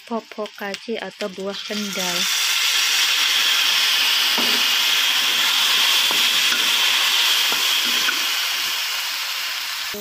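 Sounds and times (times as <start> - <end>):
hot oil sizzling in a wok: 0.0 - 10.0
wooden spatula knocking pan: 4.3 - 6.8, 7.4 - 8.3.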